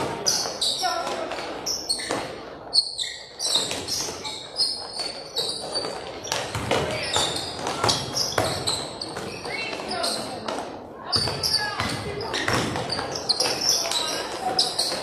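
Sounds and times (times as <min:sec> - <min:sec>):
sneakers squeaking: 0:00.0 - 0:15.0
basketball bouncing on hardwood floor: 0:06.3 - 0:09.3.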